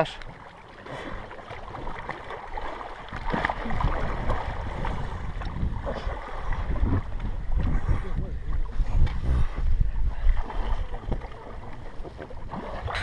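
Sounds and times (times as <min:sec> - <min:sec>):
river water washing: 0:00.0 - 0:07.7
wind rumbling on microphone: 0:01.7 - 0:13.0.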